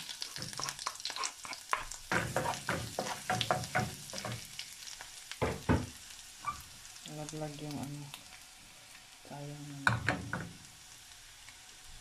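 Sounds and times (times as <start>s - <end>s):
garlic and onion sizzling in butter: 0.0s - 12.0s
utensils scraping and knocking pan: 0.3s - 4.4s.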